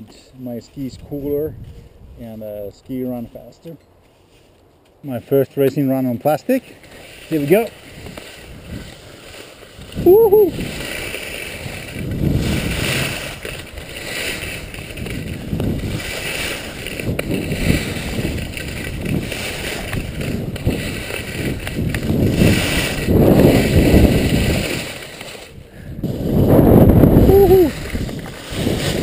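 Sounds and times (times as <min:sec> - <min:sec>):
skis scraping over plastic matting: 0:03.1 - 0:29.0.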